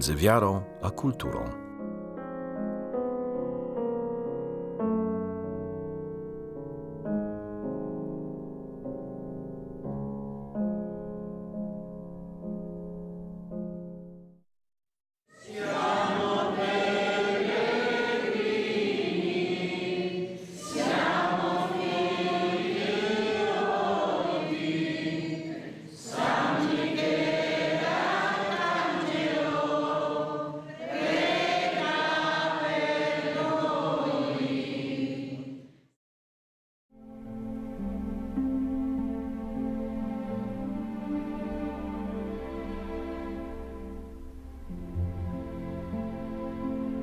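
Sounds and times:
piano tone: 0:00.0 - 0:14.4
women singing a hymn: 0:15.3 - 0:35.7.

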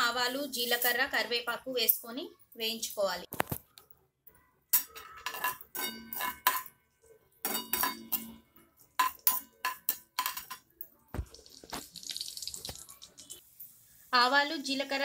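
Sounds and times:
metal spatula scraping a pan: 0:04.8 - 0:06.7.

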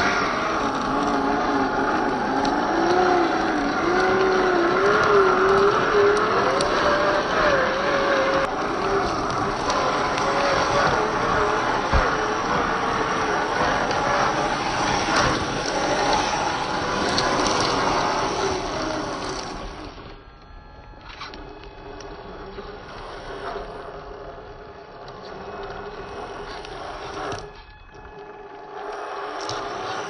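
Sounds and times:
tyres and chassis churn: 0:00.0 - 0:20.2
electric motor whine: 0:00.0 - 0:30.0.

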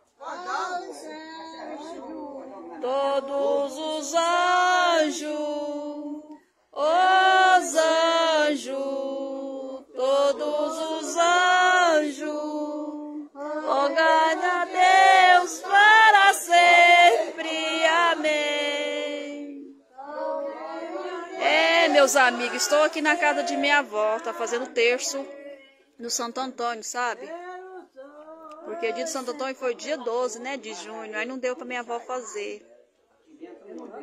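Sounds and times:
group singing a hymn: 0:00.0 - 0:25.7.

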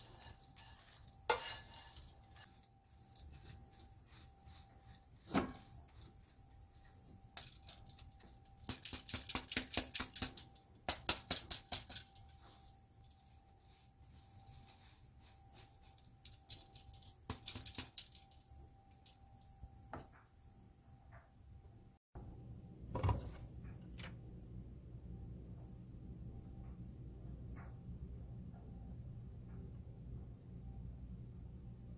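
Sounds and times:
dried fish rustling in mesh strainer: 0:00.0 - 0:08.4, 0:11.4 - 0:18.3.

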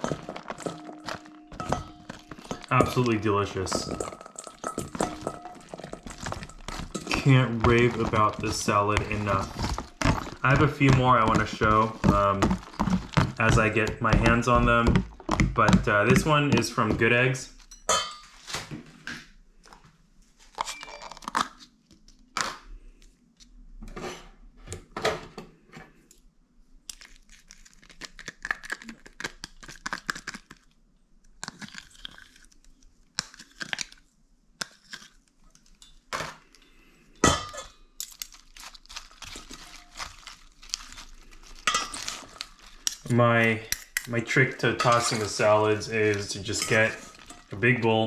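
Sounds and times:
plastic packaging crinkling: 0:00.0 - 0:17.7, 0:26.9 - 0:30.8, 0:38.0 - 0:48.0
forks scraping a metal bowl: 0:44.8 - 0:47.6.

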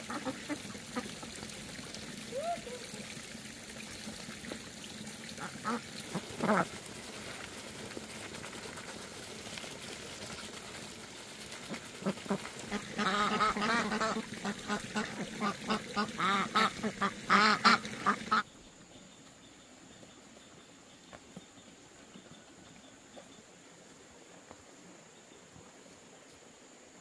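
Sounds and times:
ducks quacking: 0:00.0 - 0:01.3, 0:05.4 - 0:06.8, 0:11.6 - 0:18.4.

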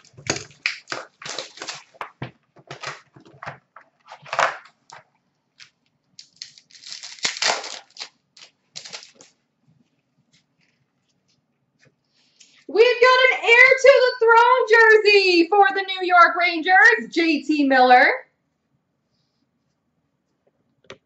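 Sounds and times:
plastic shrink wrap crackling: 0:00.0 - 0:11.5.

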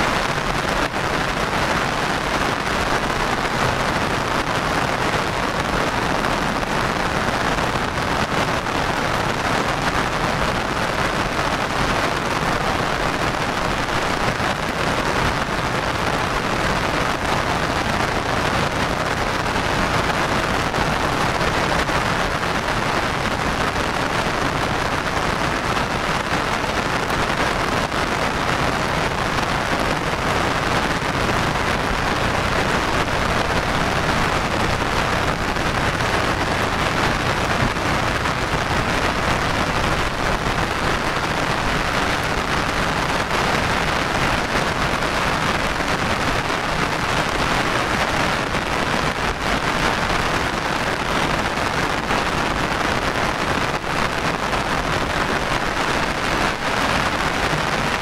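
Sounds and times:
heavy rain falling: 0:00.0 - 0:58.0.

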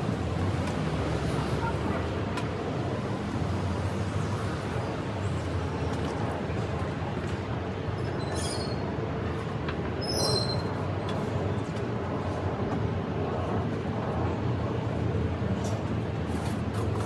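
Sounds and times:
brief high-pitched squeals: 0:08.0 - 0:08.8, 0:10.0 - 0:10.8.

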